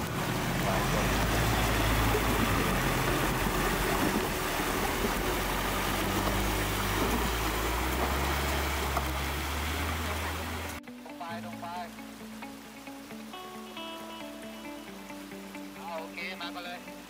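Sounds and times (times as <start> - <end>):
diesel engine running: 0.0 - 10.8
water splashing around tyres: 0.0 - 10.8.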